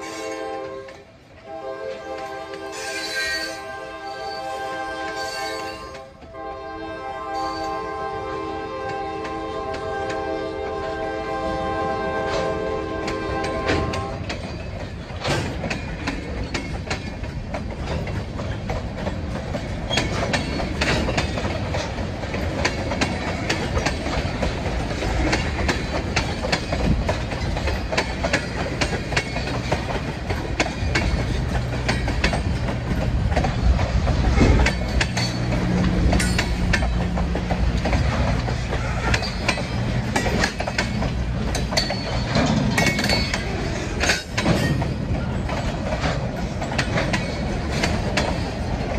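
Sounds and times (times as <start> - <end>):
train wheels rumbling on rails: 0.0 - 48.9
wheels clanking over rail joints: 0.0 - 48.9.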